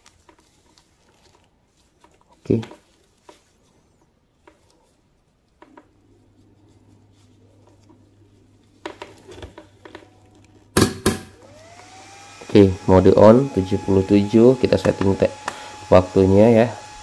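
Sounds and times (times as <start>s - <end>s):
small clicks and rustles: 0.0s - 6.0s.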